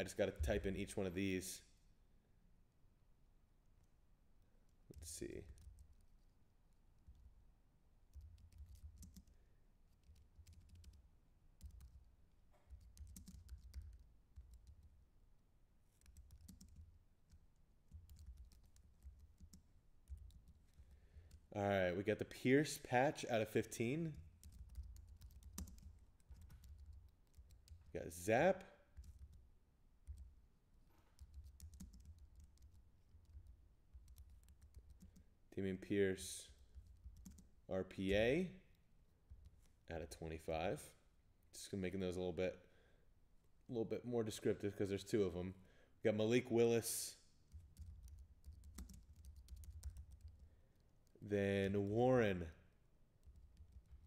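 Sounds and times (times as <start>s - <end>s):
faint keyboard typing: 3.8s - 7.4s, 8.0s - 15.1s, 15.8s - 21.6s, 23.4s - 28.2s, 28.8s - 35.4s, 36.5s - 40.2s, 47.4s - 52.0s, 53.1s - 54.0s
keyboard keys clicking: 12.7s - 14.9s, 16.0s - 20.6s, 24.4s - 27.9s, 47.5s - 50.4s.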